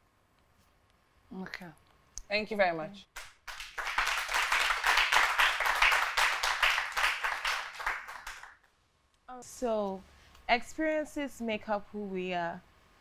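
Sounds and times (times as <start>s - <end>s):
audience applauding: 3.4s - 8.6s.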